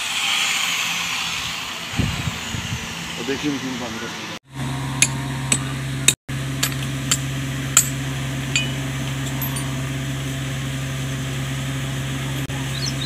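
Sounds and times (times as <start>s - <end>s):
low machine hum: 0.2s - 13.0s
metal chain clinking: 7.8s - 9.8s.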